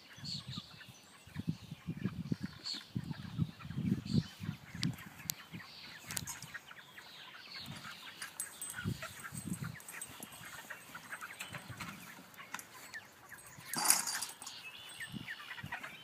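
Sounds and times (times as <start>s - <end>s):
chickens peeping and clucking: 0.0s - 16.0s.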